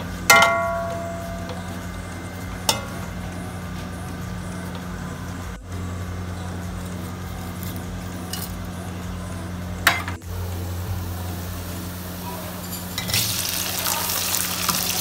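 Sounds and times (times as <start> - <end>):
steady low hum: 0.0 - 13.1
onions frying: 10.3 - 15.0.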